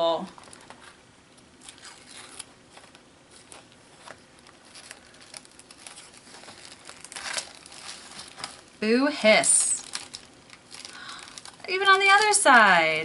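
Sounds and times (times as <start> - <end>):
wax paper peeling off paint: 1.6 - 8.7, 9.5 - 12.3.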